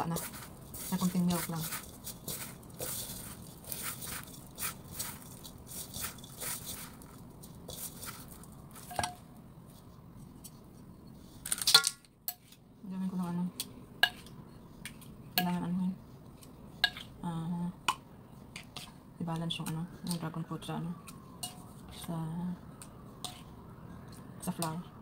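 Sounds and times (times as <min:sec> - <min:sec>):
hands mixing dough in metal bowl: 0:00.0 - 0:09.2.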